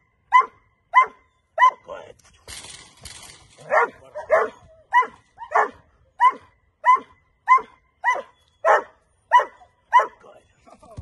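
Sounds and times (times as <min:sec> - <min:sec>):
puppy barking: 0:00.3 - 0:01.8, 0:03.6 - 0:10.2.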